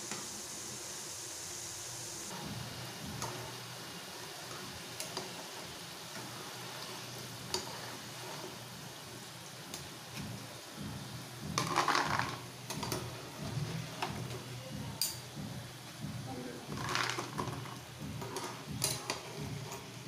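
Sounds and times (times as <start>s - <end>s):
fries sizzling in hot oil: 0.0s - 20.0s
scraping and clatter: 16.7s - 20.0s.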